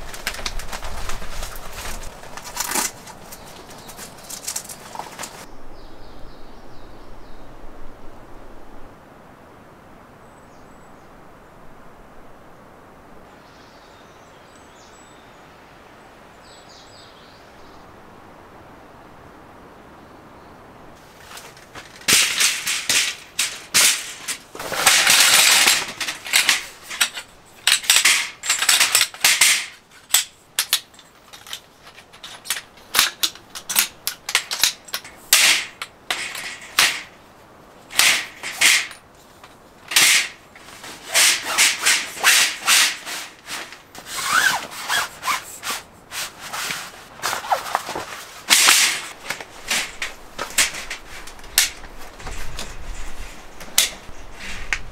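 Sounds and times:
fabric rustling: 0.0 - 5.5, 21.0 - 30.2, 36.2 - 54.9
frame joints squeaking: 0.0 - 5.5, 21.0 - 37.2, 37.9 - 54.8
metal frame clicks and rattles: 0.0 - 5.5, 21.0 - 37.2, 37.9 - 45.8, 46.5 - 54.9.

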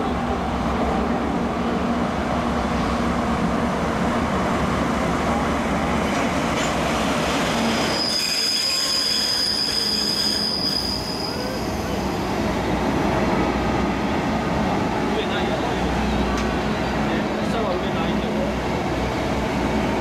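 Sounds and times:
high-pitched wheel squeal: 7.6 - 12.0.

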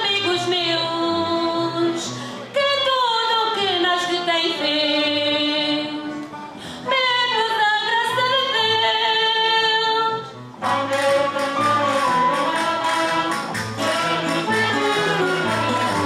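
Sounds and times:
flute: 10.6 - 16.0
rhythmic beat: 10.6 - 16.0
trumpets: 10.6 - 16.0.

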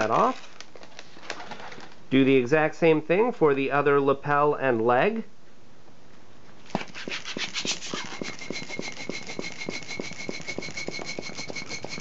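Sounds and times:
hand pump strokes: 6.7 - 12.0
thin whistle of air: 7.6 - 12.0.

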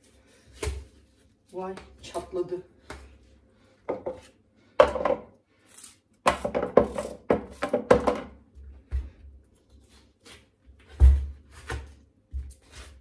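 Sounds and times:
knife cutting watermelon: 9.8 - 13.0.

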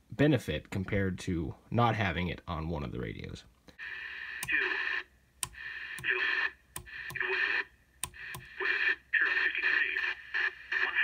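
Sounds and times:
radio static bursts: 3.8 - 11.0
sharp radio clicks: 5.4 - 11.0.

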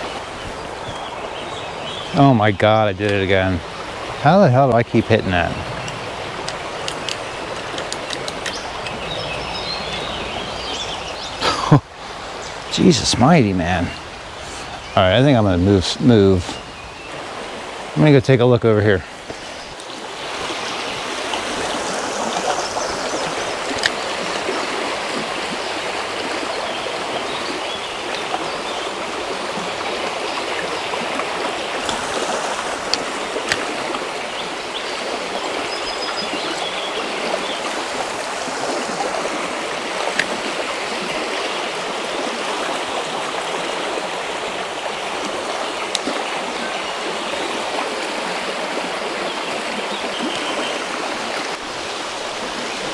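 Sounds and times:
creek water rushing: 0.0 - 52.9
sharp clicks: 5.8 - 9.0.

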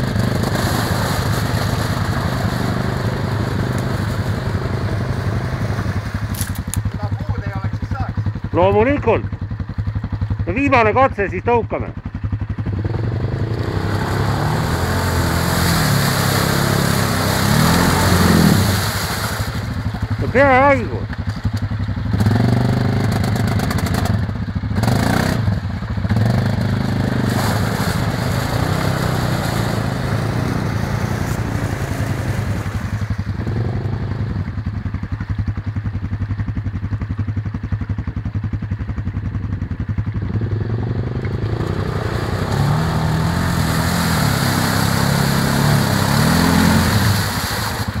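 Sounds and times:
quad engine revving under load: 0.0 - 7.2, 12.6 - 20.8, 22.1 - 24.2, 24.8 - 34.4, 40.2 - 48.0
wheels churning through mud: 0.0 - 48.0.

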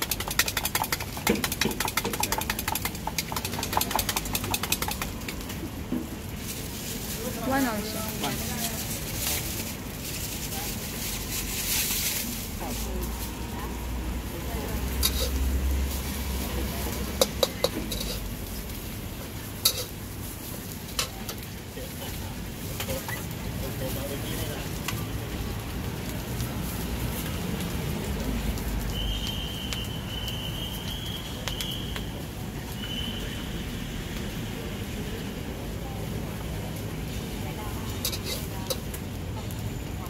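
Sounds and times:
oil crackling and popping: 0.0 - 40.0
metal spatula clinking on wok: 15.0 - 15.4, 17.2 - 18.3.

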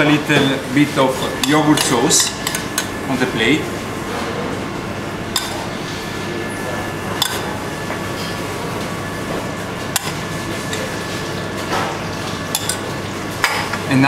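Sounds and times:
kitchen hum with faint whine: 0.0 - 14.0
metal spoon clinking on saucepan: 7.2 - 7.5, 12.5 - 12.8.

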